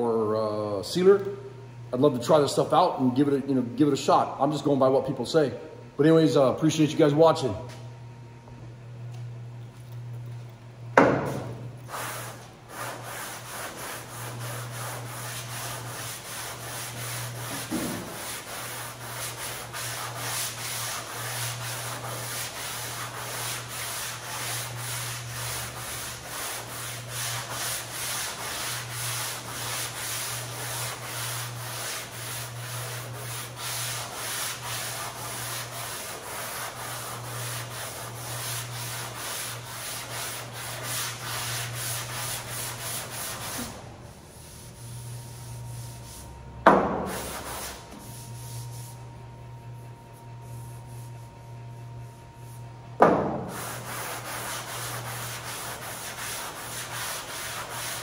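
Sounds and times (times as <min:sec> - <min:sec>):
sandpaper on sanding block: 0:11.9 - 0:43.8, 0:47.1 - 0:49.0, 0:53.4 - 0:58.0.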